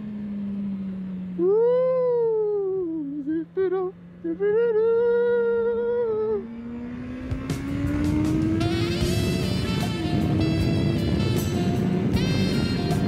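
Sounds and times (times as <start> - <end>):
motorcycle engine droning: 0.0 - 13.0.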